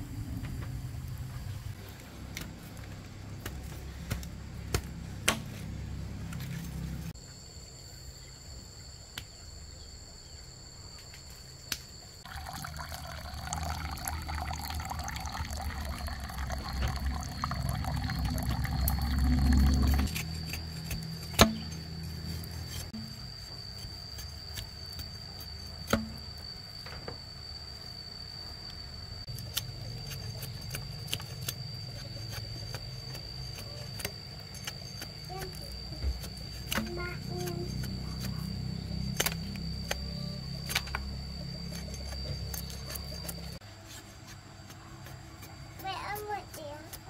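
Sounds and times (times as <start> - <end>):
water pouring: 12.2 - 20.2.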